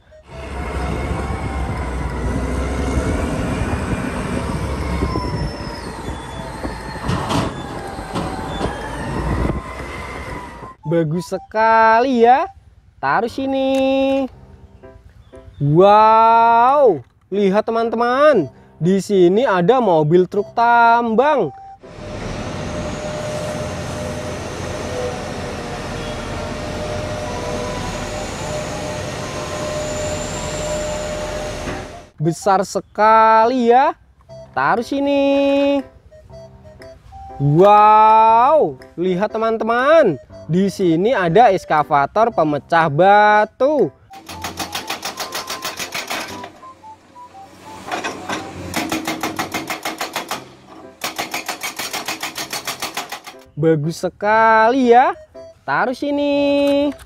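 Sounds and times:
truck engine running: 0:00.0 - 0:09.9, 0:21.6 - 0:32.2, 0:44.1 - 0:53.5
hydraulic breaker hammering rock: 0:44.2 - 0:46.5, 0:48.0 - 0:53.5.

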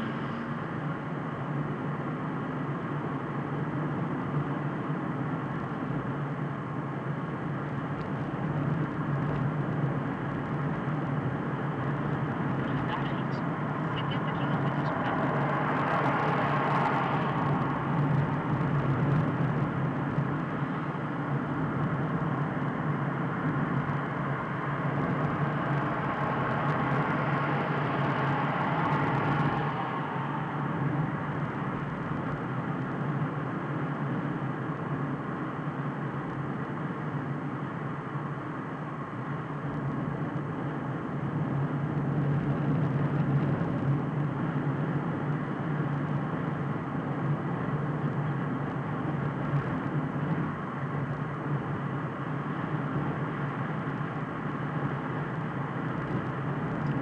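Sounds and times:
low hum: 0:00.0 - 0:45.6
car engine and tyre drone: 0:00.0 - 0:57.0.

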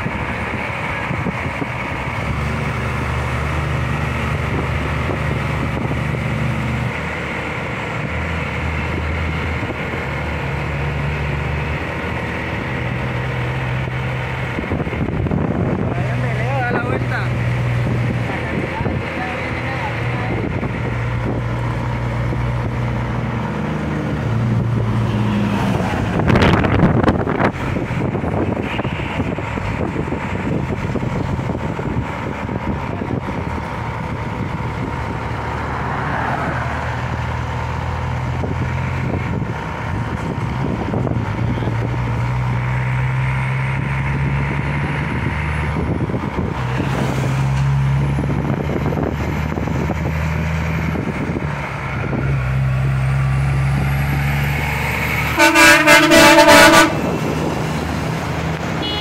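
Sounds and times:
diesel truck engine passing: 0:00.0 - 0:59.0
air horn blast: 0:55.3 - 0:57.2, 0:58.8 - 0:59.0.

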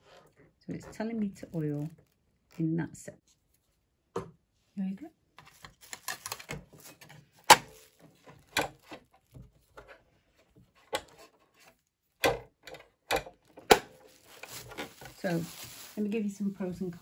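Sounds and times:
plastic cover clicks and knocks: 0:05.4 - 0:09.9, 0:12.2 - 0:15.8.

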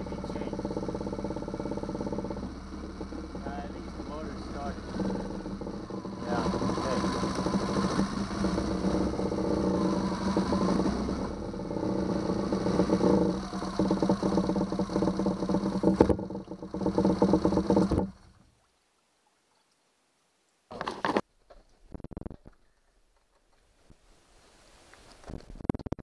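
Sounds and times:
outboard engine running: 0:00.0 - 0:18.4.

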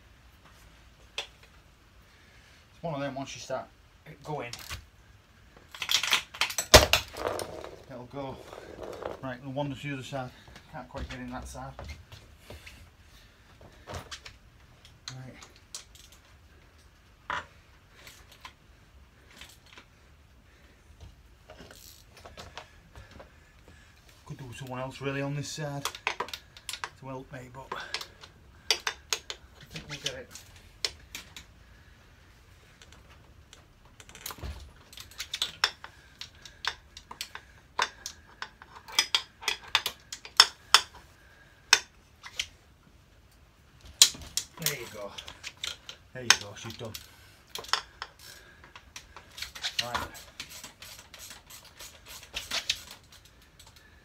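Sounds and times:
faint clicks and scrapes: 0:21.0 - 0:24.2, 0:43.3 - 0:54.0.

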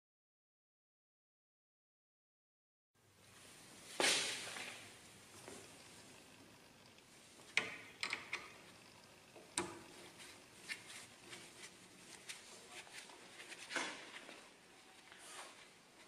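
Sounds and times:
small metal clicks and taps: 0:07.6 - 0:08.6.

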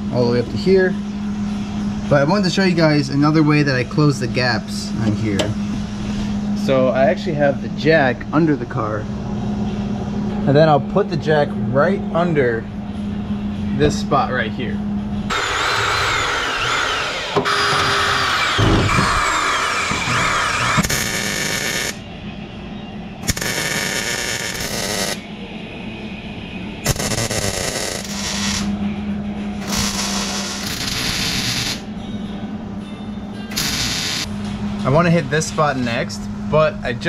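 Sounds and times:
electric drill whirring into metal: 0:15.3 - 0:22.0, 0:33.5 - 0:34.3
welder crackling: 0:33.5 - 0:34.3.

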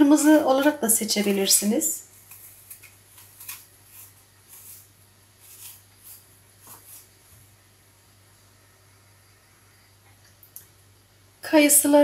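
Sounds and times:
blade scraping apple peel: 0:00.0 - 0:07.1.

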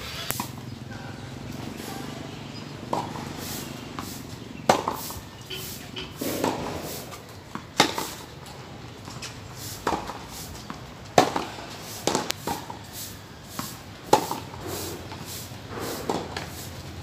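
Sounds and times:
rackets striking tennis ball: 0:00.2 - 0:00.6, 0:02.8 - 0:12.8, 0:13.5 - 0:16.6
ball bouncing on court: 0:02.8 - 0:03.3, 0:06.2 - 0:08.3.

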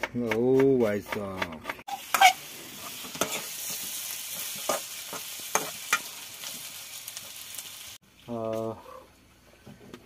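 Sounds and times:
utensil scraping pan: 0:00.5 - 0:06.0
potatoes sizzling in oil: 0:01.9 - 0:08.5.

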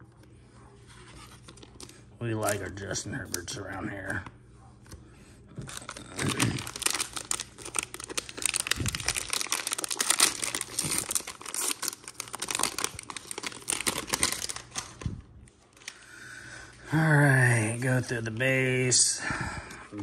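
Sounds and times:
foil wrapper crinkling: 0:05.6 - 0:16.1.

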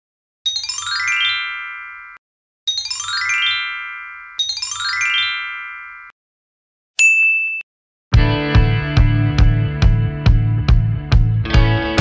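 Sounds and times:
falling bell-like chime glissando: 0:00.5 - 0:06.1.

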